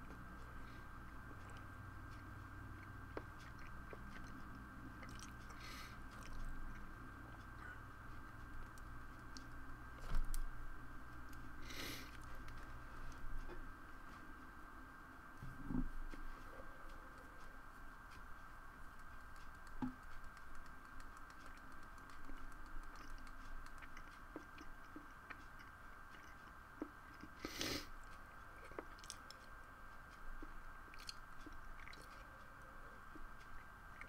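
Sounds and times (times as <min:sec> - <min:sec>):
electrical hum: 0:00.0 - 0:34.0
small clicks and crunchy taps: 0:18.8 - 0:27.4.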